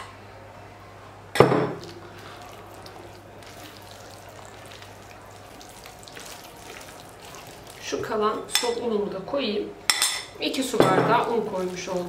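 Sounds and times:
spatula stirring thick batter: 1.8 - 8.6, 11.2 - 12.0.

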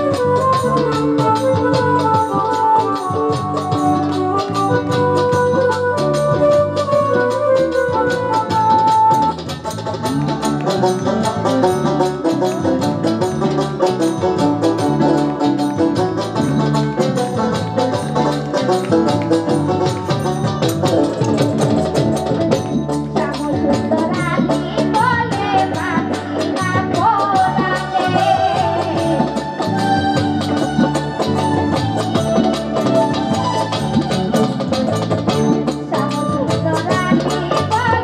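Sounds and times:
hand drums: 0.0 - 38.0
jingling percussion: 0.0 - 38.0
keyboard folk music: 0.0 - 38.0
woman singing: 23.1 - 29.6, 35.8 - 38.0.

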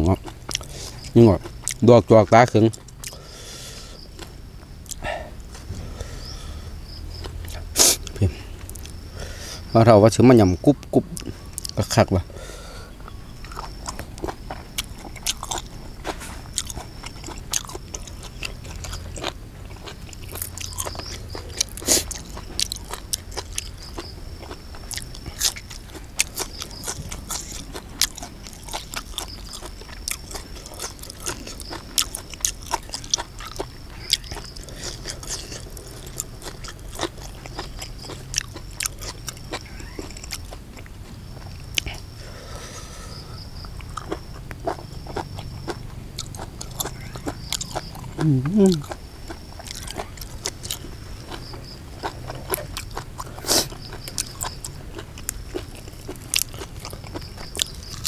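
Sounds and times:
person chewing and biting: 0.0 - 1.8, 2.4 - 9.6, 11.1 - 11.9, 13.0 - 58.0
small food crunches: 13.0 - 42.6, 43.4 - 58.0.

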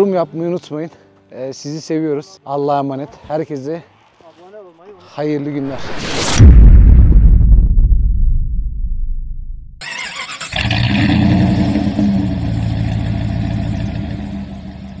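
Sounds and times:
low rumble: 5.6 - 9.8
vehicle engine running: 10.6 - 15.0.

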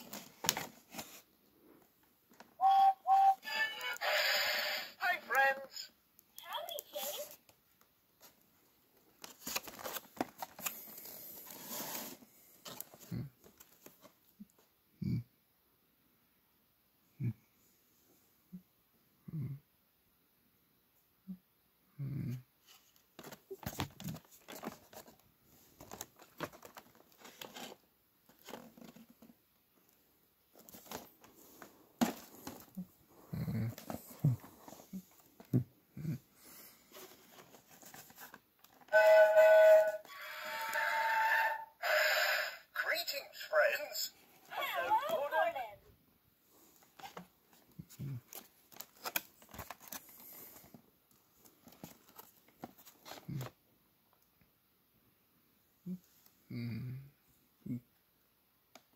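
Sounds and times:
cardboard and plastic crinkling: 0.0 - 1.3, 9.1 - 14.2, 22.8 - 29.3, 30.5 - 32.8, 36.9 - 38.9, 48.3 - 53.5
plastic packaging crinkling: 9.2 - 11.0.

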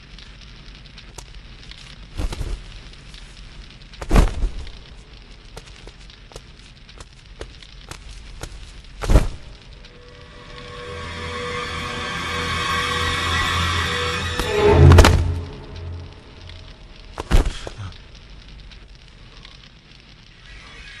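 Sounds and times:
fire crackling and popping: 0.0 - 21.0
low steady rush: 8.6 - 19.4.

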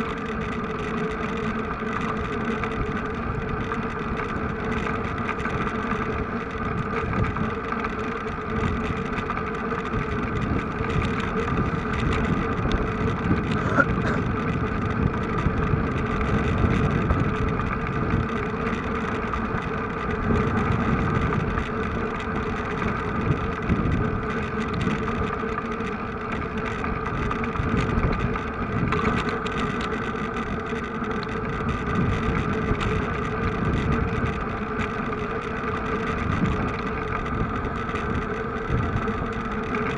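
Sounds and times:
vehicle engine running: 0.0 - 39.9
wind rumble on microphone: 0.0 - 39.9.

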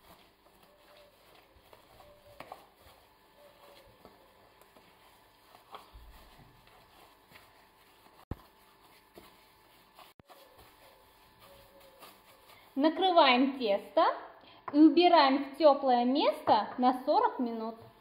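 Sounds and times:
dough squishing and patting: 0.0 - 14.0.

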